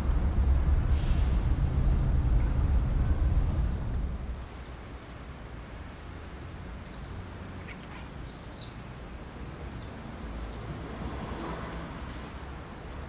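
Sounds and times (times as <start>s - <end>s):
steady low rumble: 0.0s - 4.4s.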